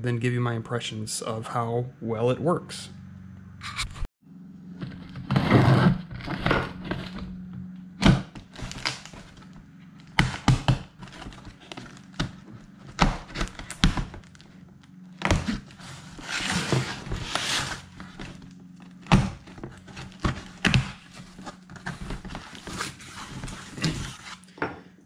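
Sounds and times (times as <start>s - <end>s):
cardboard scraping rustle: 4.8s - 7.6s, 8.2s - 24.6s.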